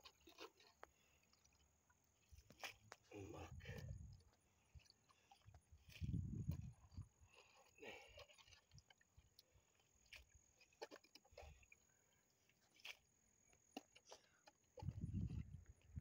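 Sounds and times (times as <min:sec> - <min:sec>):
wet squelches of scooping mud: 0:00.0 - 0:16.0.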